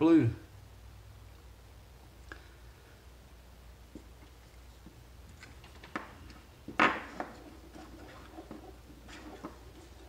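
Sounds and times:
plastic parts knocking on wood: 5.6 - 10.0.

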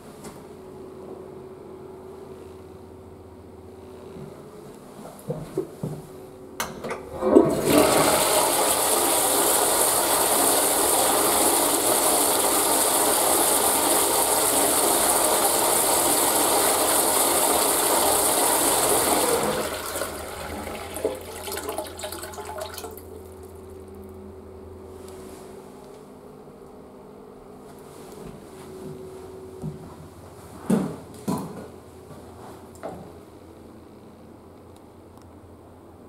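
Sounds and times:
toilet flushing water rush: 6.9 - 23.6.

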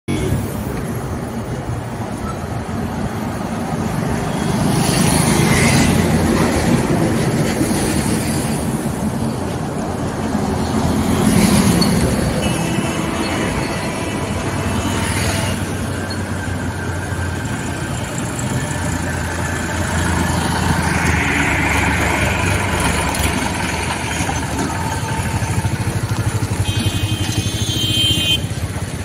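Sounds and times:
heavy road traffic: 0.0 - 29.0
motorbike: 3.5 - 29.0
diesel tractor engine running: 8.6 - 29.0.

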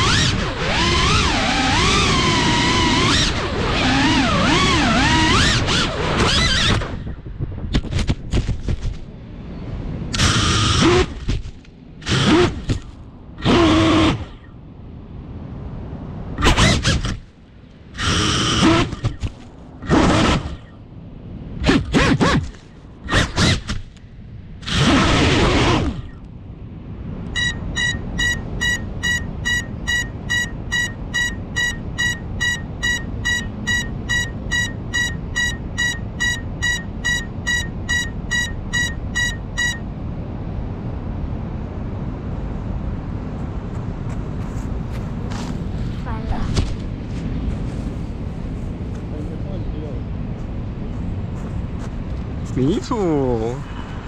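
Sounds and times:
drone motors spinning up: 0.0 - 7.2, 10.1 - 14.5, 16.4 - 17.3, 18.0 - 20.7, 24.6 - 26.3, 27.3 - 39.8
propellers whirring against leaves: 0.0 - 7.2
high buzzer beeps: 27.3 - 39.9.

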